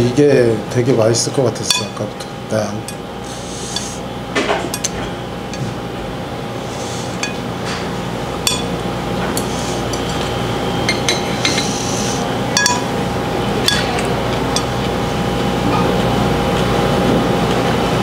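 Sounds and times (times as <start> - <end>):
steady background hum: 0.0 - 18.0
spoon clinking against bowl: 1.7 - 2.0, 12.6 - 12.9.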